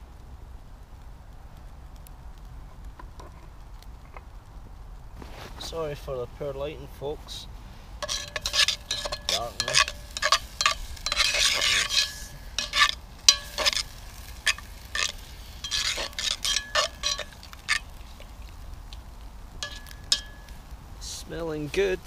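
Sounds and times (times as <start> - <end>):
meat sizzling in a pot: 7.7 - 22.0
utensil scraping a pot: 8.0 - 20.6.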